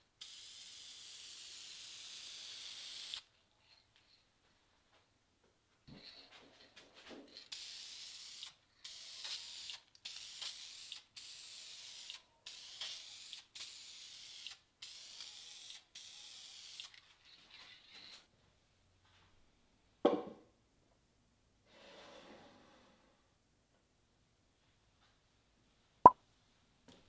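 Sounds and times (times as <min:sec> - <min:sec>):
aerosol can spraying hiss: 0:00.2 - 0:03.2, 0:07.5 - 0:16.9.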